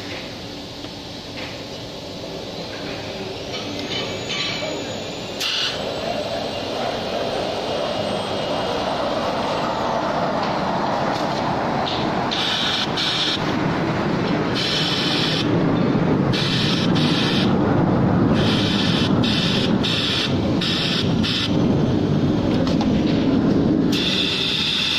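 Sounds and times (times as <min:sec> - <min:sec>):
high hiss bursts: 0:05.3 - 0:06.0, 0:11.9 - 0:13.5, 0:14.5 - 0:15.5, 0:16.3 - 0:17.6, 0:18.3 - 0:21.6, 0:23.9 - 0:24.9.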